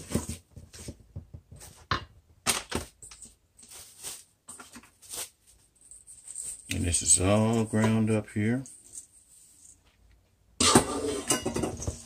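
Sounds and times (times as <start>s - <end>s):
utensil scraping metal bowl: 10.6s - 12.0s.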